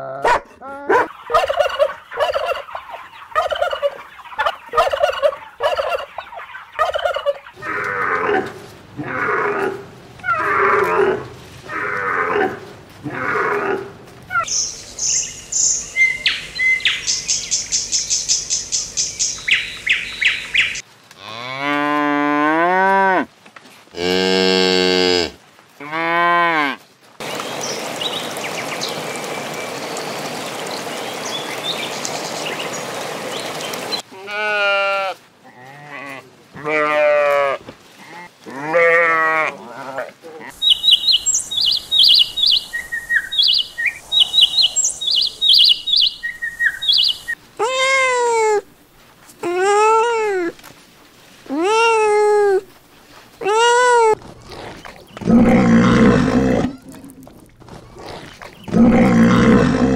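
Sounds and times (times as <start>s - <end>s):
dog barking: 0.2s - 2.5s
fowl calls: 0.9s - 8.7s
high bird chirps: 14.4s - 20.8s, 40.6s - 47.4s
water splashing: 27.2s - 34.0s, 50.8s - 59.9s
cow mooing: 54.5s - 57.2s, 58.0s - 59.9s.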